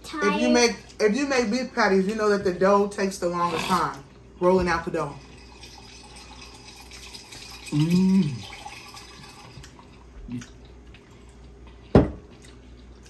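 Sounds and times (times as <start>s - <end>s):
person humming mmm: 7.7s - 8.5s, 10.2s - 10.6s.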